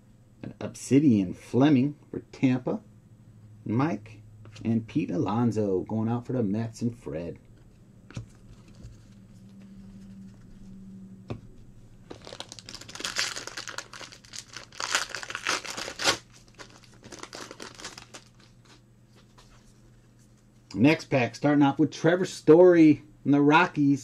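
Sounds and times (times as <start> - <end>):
foil wrapper crinkling and tearing: 12.1 - 18.8.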